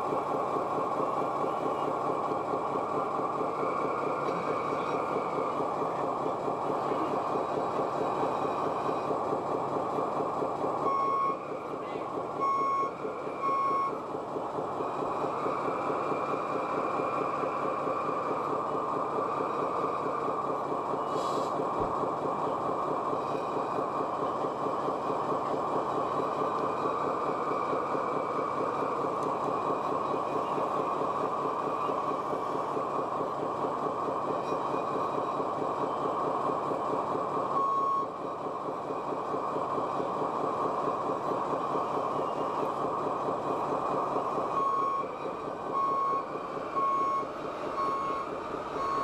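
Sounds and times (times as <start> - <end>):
reversing beep: 10.8 - 11.4, 12.4 - 14.0, 37.6 - 38.1, 44.5 - 49.0.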